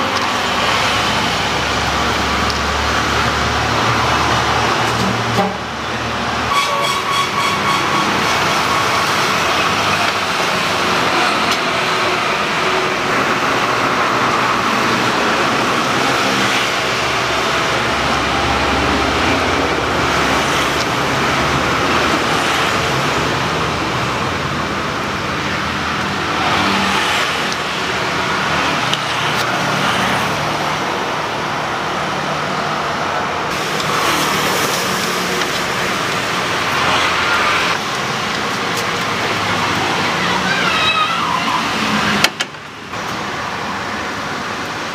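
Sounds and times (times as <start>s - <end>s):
road traffic passing: 0.0s - 44.9s.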